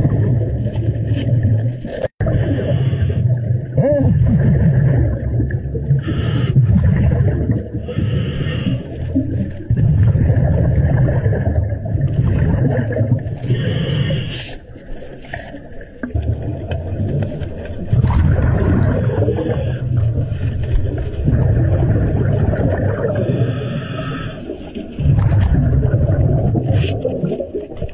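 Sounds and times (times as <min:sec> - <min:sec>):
exhaled bubbles gushing: 0:00.0 - 0:27.9
regulator hissing breaths: 0:07.9 - 0:09.0, 0:13.5 - 0:14.6, 0:23.3 - 0:24.5.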